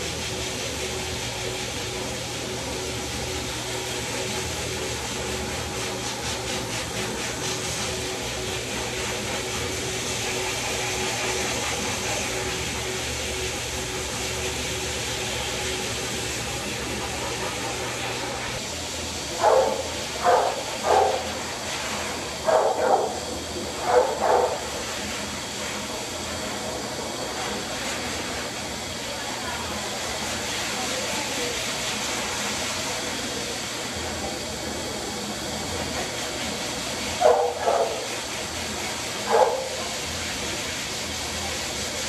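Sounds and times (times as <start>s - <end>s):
steady motor hum: 0.0s - 42.0s
dog barking: 19.4s - 21.3s, 22.4s - 23.2s, 23.8s - 24.6s, 37.2s - 38.1s, 39.3s - 39.8s.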